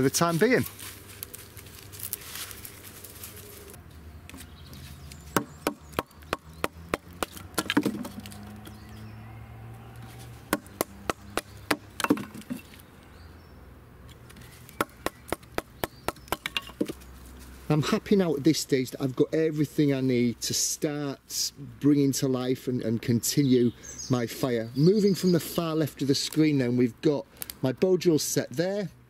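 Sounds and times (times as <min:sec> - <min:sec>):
knife splitting kindling on log: 0:04.3 - 0:08.5.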